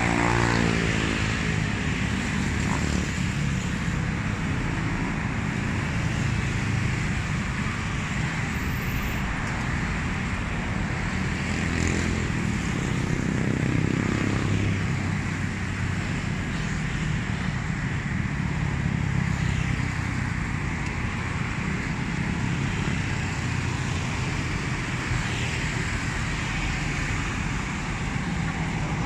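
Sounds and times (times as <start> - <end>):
road vehicle rumble: 0.0 - 29.0.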